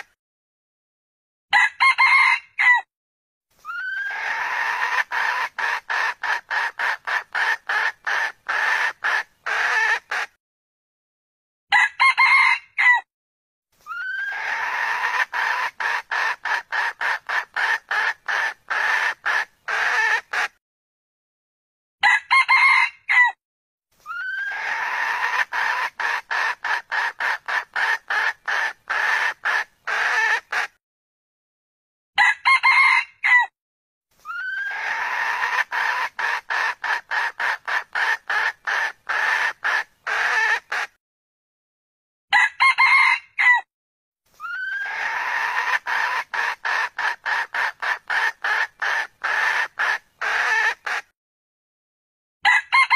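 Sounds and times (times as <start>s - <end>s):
rooster crowing: 1.5s - 2.9s, 11.7s - 13.1s, 22.0s - 23.4s, 32.2s - 33.5s, 42.3s - 43.7s, 52.4s - 52.9s
rapid chicken clucking: 3.7s - 10.4s, 13.9s - 20.6s, 24.1s - 30.8s, 34.3s - 41.0s, 44.4s - 51.1s.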